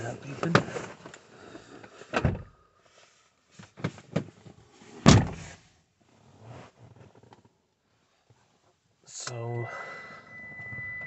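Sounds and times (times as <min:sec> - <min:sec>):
dull thumps in car cabin: 0:02.2 - 0:02.5, 0:05.1 - 0:05.6.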